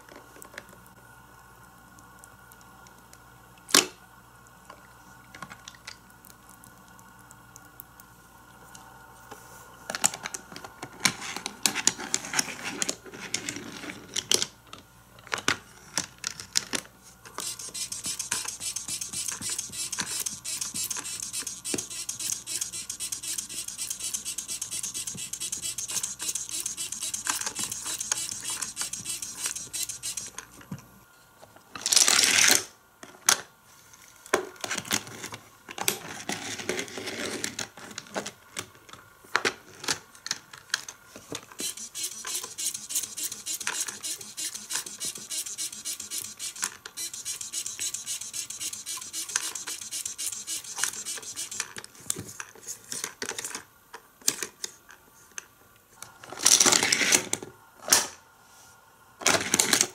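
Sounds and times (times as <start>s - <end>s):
toy plastic clicking and rattling: 17.3s - 30.6s, 41.5s - 51.9s.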